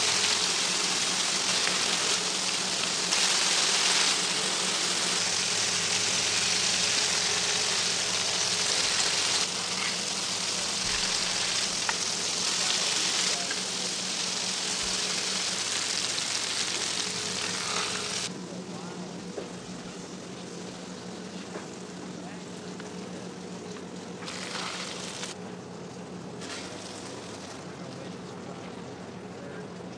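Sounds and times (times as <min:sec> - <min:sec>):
meat and onions sizzling on griddle: 0:00.0 - 0:18.3, 0:24.2 - 0:25.4
steady low hum: 0:00.0 - 0:29.9.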